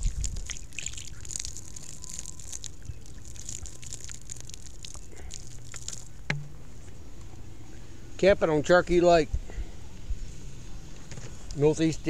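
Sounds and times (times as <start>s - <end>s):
water splashing on ground: 0.0s - 6.6s.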